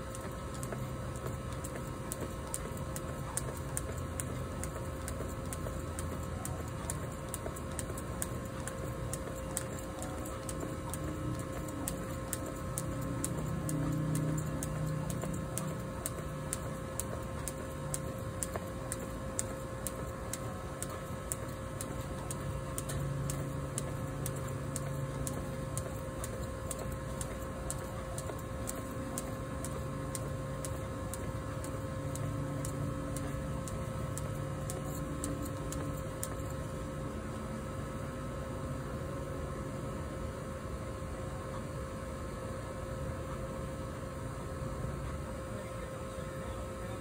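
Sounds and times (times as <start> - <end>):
jump rope slapping concrete: 0.0 - 37.1
steady hum: 0.0 - 47.0.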